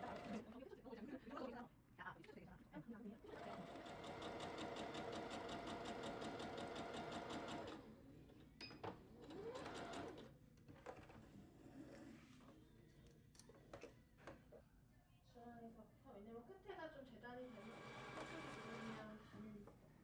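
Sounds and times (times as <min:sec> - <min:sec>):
quiet handling sounds: 0:10.5 - 0:15.3
sewing machine stitching: 0:17.5 - 0:19.1.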